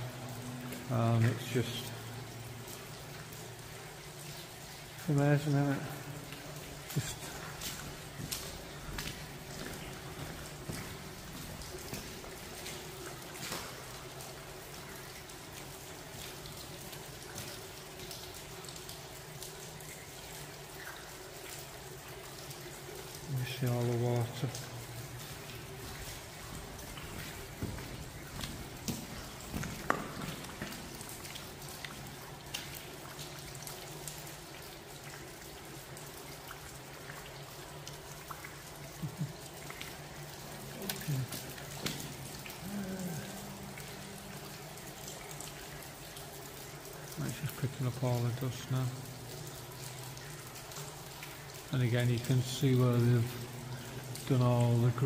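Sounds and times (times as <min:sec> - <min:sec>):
faint water drips: 0:00.0 - 0:55.0
water trickling: 0:00.0 - 0:55.0
hiss of running water: 0:04.9 - 0:14.6.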